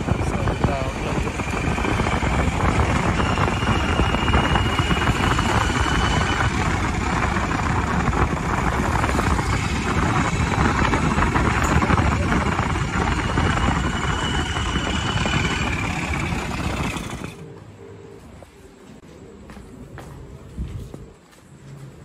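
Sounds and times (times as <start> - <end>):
motorbike engine riding: 0.0 - 17.6
wind buffeting microphone: 0.0 - 21.3.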